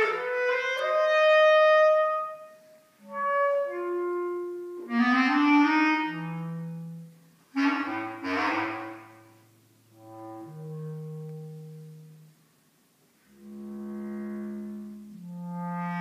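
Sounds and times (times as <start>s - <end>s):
bass clarinet playing: 0.0s - 12.5s, 13.3s - 16.0s.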